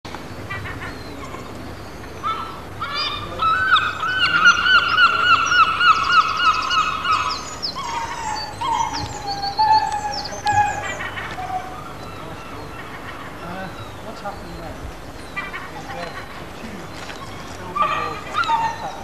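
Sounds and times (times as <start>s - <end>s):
gulls yelping: 0.1s - 19.0s
gulls long drawn-out calls: 0.4s - 14.4s, 15.2s - 19.0s.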